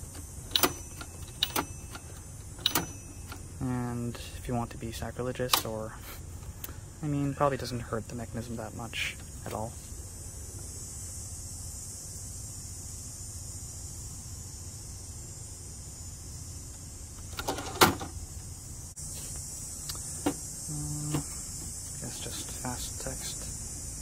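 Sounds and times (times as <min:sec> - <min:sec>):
typewriter clicking: 0:00.0 - 0:03.4
steady high hiss: 0:00.0 - 0:24.0.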